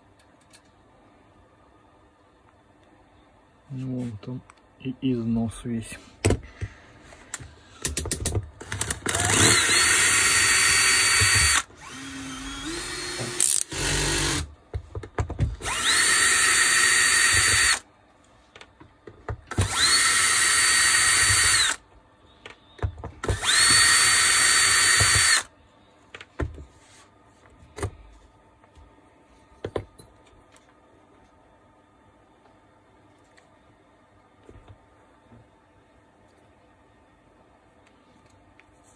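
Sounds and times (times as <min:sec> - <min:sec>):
cordless drill whining: 0:08.6 - 0:14.5, 0:15.6 - 0:17.8, 0:19.5 - 0:21.8, 0:23.2 - 0:25.5.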